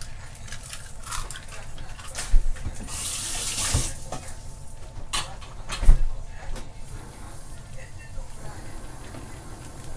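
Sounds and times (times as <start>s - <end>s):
kitchen tap running: 2.8s - 4.1s, 8.3s - 9.9s.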